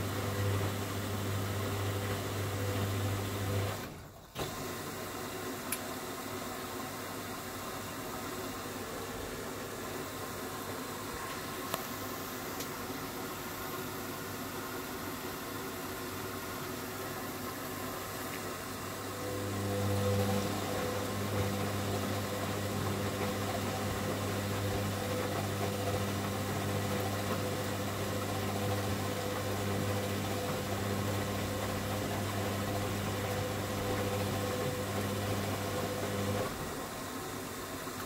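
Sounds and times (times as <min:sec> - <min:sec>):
washing machine tumbling: 0:00.0 - 0:07.0, 0:15.3 - 0:38.0.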